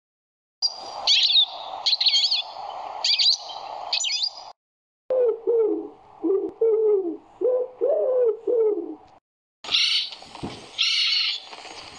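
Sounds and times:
pigeon cooing: 5.1s - 9.1s.

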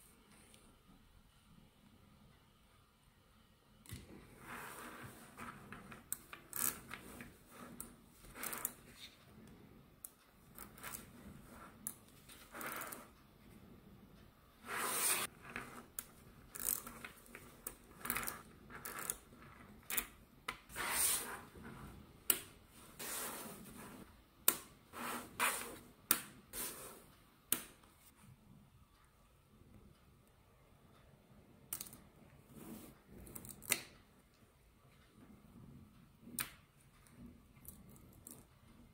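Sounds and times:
magnetic balls clicking together: 15.2s - 20.7s.

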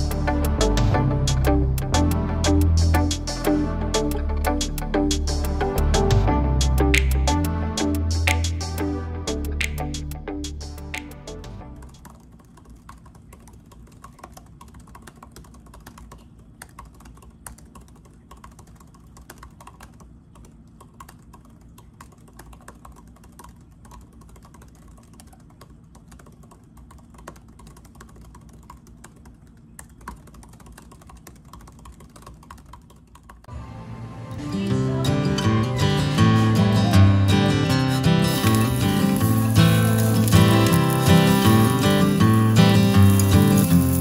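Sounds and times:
guitar music: 0.0s - 12.0s, 33.5s - 44.0s
soft keyboard clicks: 11.9s - 33.5s.

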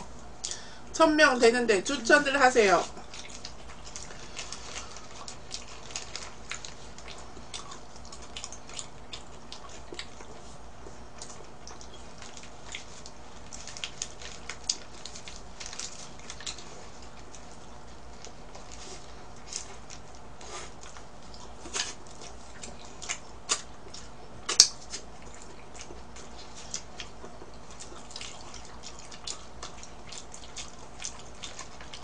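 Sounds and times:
steady low hum: 0.0s - 32.0s
paper wrapper crinkling: 3.0s - 7.1s, 12.1s - 20.1s
chewing with wet mouth clicks: 3.0s - 32.0s.

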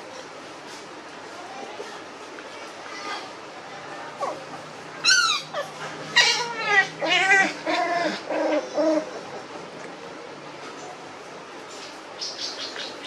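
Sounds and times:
puppies yelping and whining: 4.2s - 9.7s.

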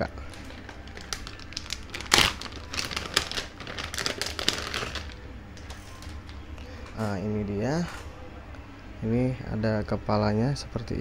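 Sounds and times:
plastic bag crinkling: 0.3s - 6.4s.

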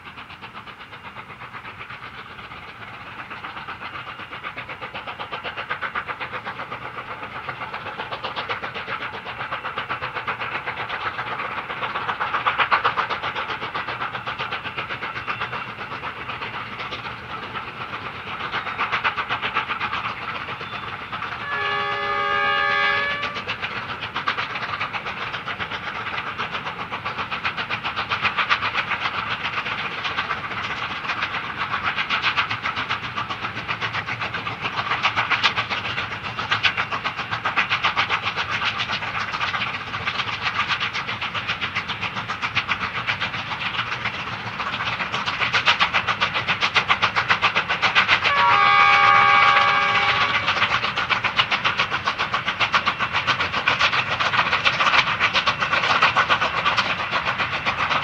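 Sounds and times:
steam locomotives chuffing: 0.0s - 58.0s
locomotive whistle: 20.5s - 23.5s, 48.2s - 50.7s.

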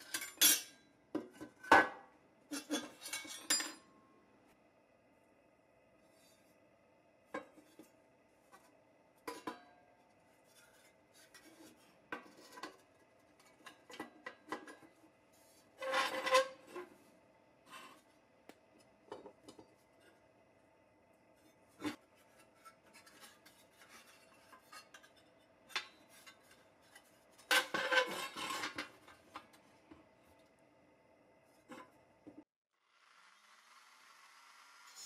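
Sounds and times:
metal toy clattering rub: 21.4s - 29.4s.

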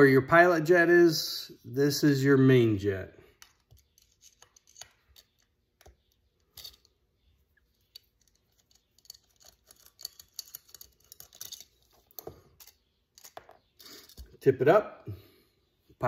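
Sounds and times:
screwdriver scraping and clicking: 3.4s - 7.0s, 7.6s - 14.3s.

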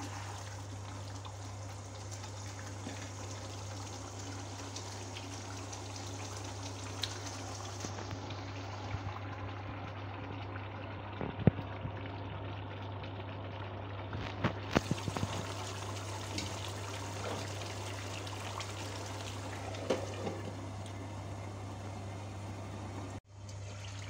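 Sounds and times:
gravy bubbling in a pan: 0.0s - 24.0s
low steady hum: 0.0s - 24.0s.

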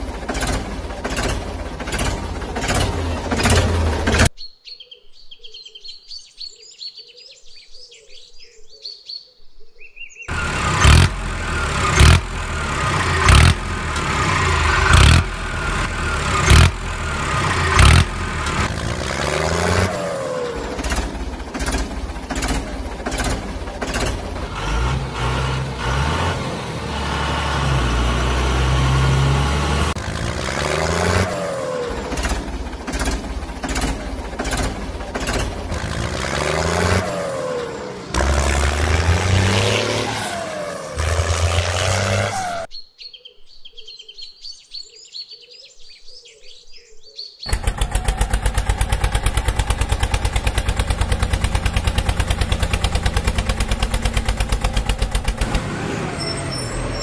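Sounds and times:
vehicle engine: 0.0s - 4.3s, 10.3s - 42.7s, 47.5s - 57.0s
faint birdsong: 2.6s - 10.9s, 42.6s - 47.8s.

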